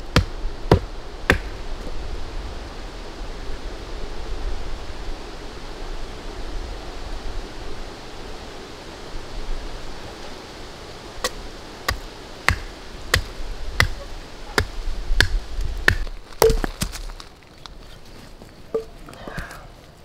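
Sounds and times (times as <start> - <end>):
background hiss: 0.0 - 20.0
blade chopping wood: 0.1 - 1.6, 11.2 - 14.0, 14.6 - 17.2.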